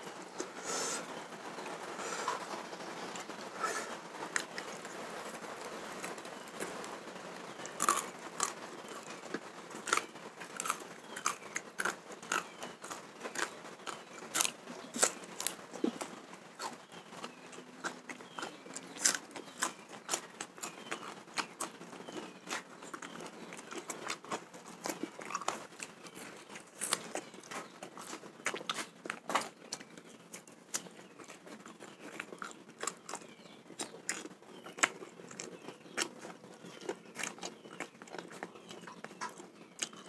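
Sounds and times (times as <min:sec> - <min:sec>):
person chewing: 0:07.6 - 0:29.8, 0:30.7 - 0:40.0.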